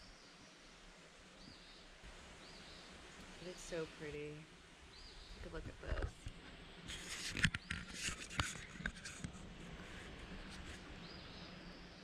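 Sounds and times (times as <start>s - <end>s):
faint woodland ambience: 0.0s - 12.0s
camera handling noise: 6.9s - 9.4s.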